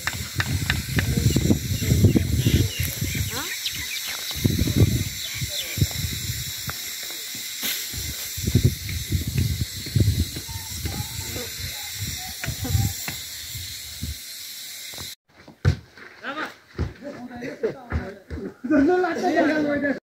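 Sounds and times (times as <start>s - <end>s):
wind buffeting microphone: 0.0s - 6.8s, 7.9s - 14.2s
steady high hiss: 0.0s - 15.2s.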